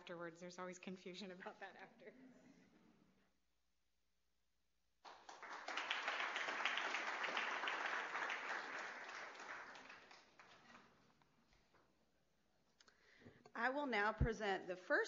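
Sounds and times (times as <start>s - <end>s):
audience applauding: 5.0s - 10.9s.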